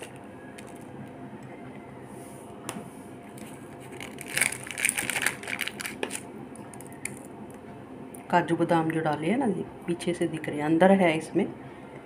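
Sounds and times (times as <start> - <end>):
wrapping crinkling: 3.4 - 7.3.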